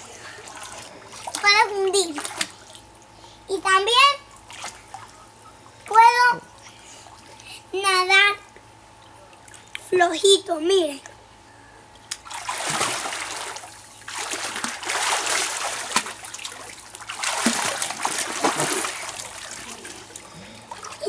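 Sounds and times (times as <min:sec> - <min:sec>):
child splashing water: 0:00.4 - 0:02.8, 0:12.2 - 0:21.0.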